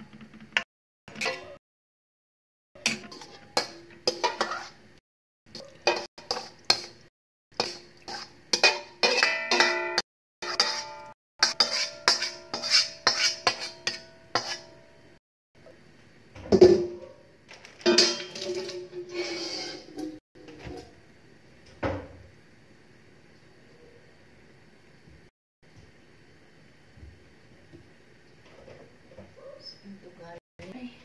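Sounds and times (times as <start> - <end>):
metal utensil scraping metal bowl: 2.8 - 4.8, 5.8 - 7.0, 7.6 - 14.8, 17.8 - 20.2
metal ringing: 8.6 - 12.3.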